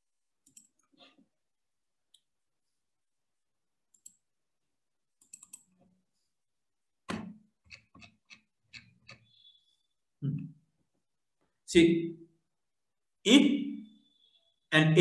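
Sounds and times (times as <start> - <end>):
computer mouse clicking: 0.4 - 0.9, 5.2 - 5.7.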